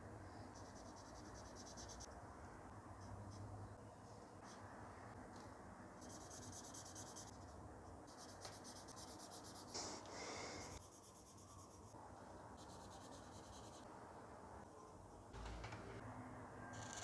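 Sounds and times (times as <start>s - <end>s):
marker pen scratching on paper: 6.0s - 10.1s.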